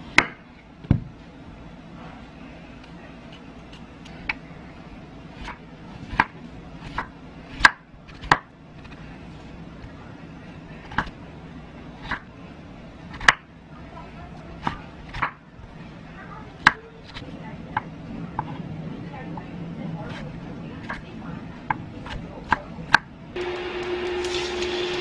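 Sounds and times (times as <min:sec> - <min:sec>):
low steady hum: 0:00.0 - 0:25.0
knife slicing potato on board: 0:05.4 - 0:09.0.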